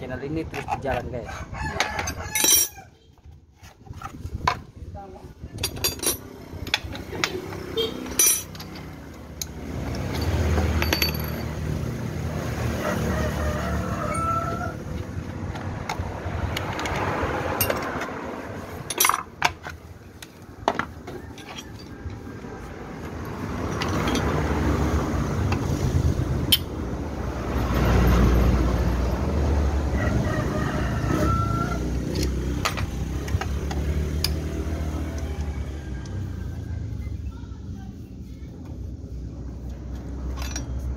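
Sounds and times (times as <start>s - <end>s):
motor traffic passing: 0.0s - 40.9s
metal clinks of hand tools: 2.0s - 2.8s, 5.6s - 7.3s, 8.0s - 11.6s, 40.2s - 40.9s.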